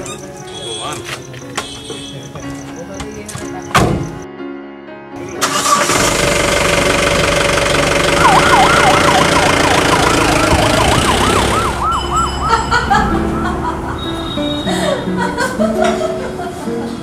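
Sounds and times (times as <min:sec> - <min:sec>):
car engine running: 0:05.9 - 0:11.7
police siren yelping: 0:08.0 - 0:14.2.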